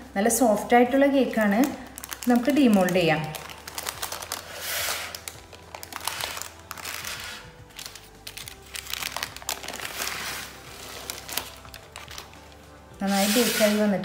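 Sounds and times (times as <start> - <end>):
faint background music: 0.0 - 14.0
baking paper crinkling: 1.4 - 14.0.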